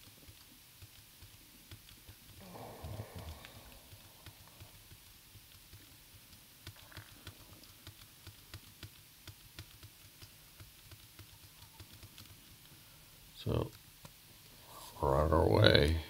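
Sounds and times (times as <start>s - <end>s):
computer keys clicking: 0.0s - 12.8s.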